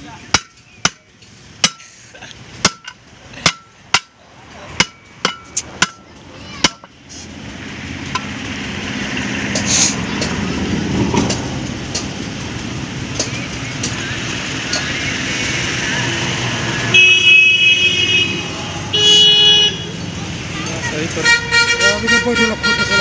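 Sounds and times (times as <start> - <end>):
steel bar clanking on wheel rim: 0.3 - 2.0, 2.6 - 7.0, 8.0 - 8.4
compressed air rushing into tyre: 7.0 - 7.5, 9.5 - 10.1.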